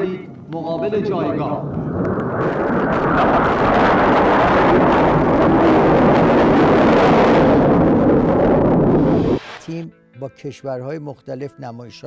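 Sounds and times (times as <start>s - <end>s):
jet aircraft flying past low: 0.8s - 9.7s.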